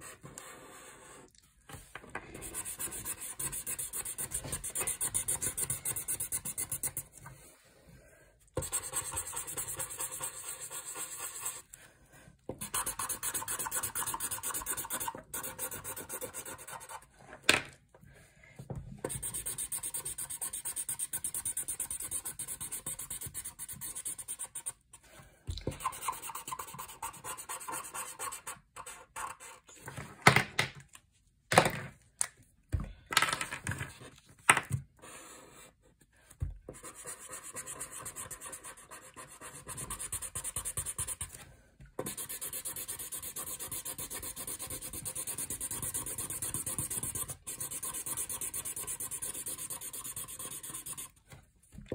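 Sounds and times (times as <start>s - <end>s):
marker scratching on paper: 2.4s - 7.2s, 8.6s - 11.6s, 12.6s - 17.1s, 19.0s - 24.8s, 25.7s - 29.7s, 36.7s - 41.3s, 42.0s - 51.2s.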